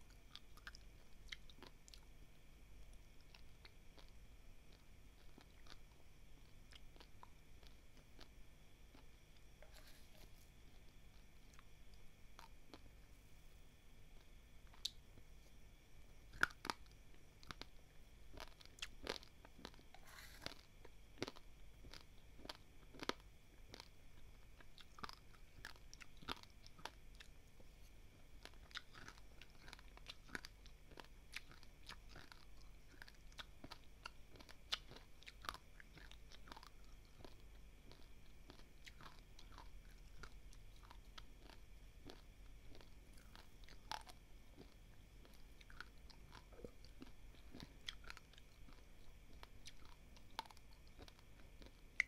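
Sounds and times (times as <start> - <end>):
crunching dry rice grains: 24.5 - 51.8.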